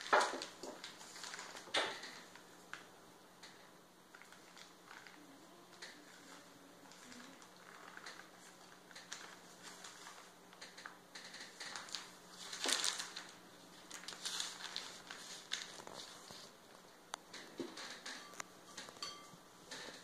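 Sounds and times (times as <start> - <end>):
paper bag rustling and crinkling: 0.0 - 2.8, 4.1 - 16.8.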